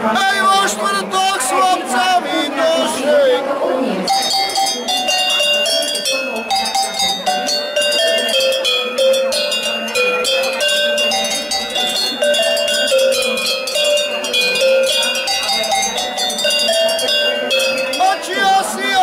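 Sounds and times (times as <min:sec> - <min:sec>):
cowbells playing a melody: 0:04.0 - 0:19.0.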